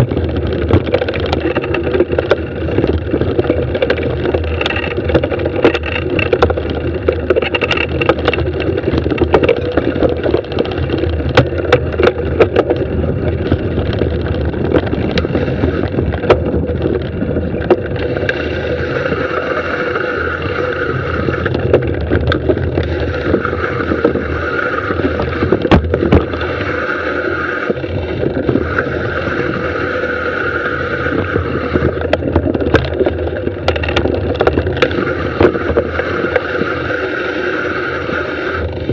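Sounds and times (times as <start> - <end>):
bike rattling over bumps: 0.0 - 38.9
wind and tyre noise: 0.0 - 38.9.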